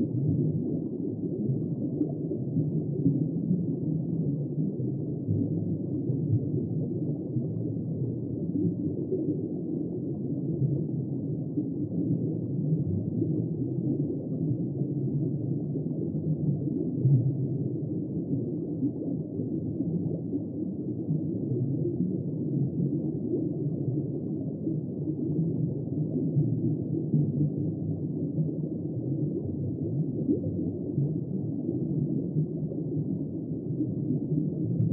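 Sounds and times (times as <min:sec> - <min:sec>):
muffled underwater water rush: 0:00.0 - 0:34.9.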